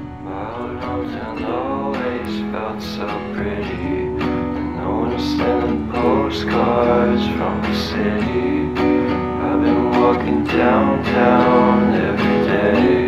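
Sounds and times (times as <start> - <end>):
song with strummed acoustic guitar: 0.0 - 13.0.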